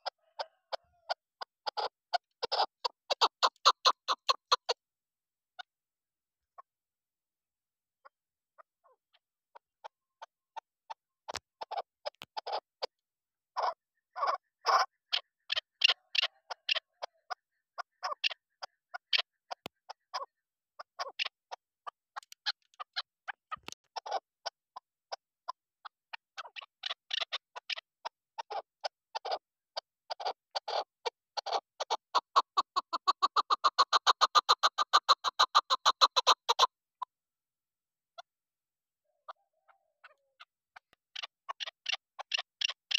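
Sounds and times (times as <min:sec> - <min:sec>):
partridge clucking: 0:00.1 - 0:04.8.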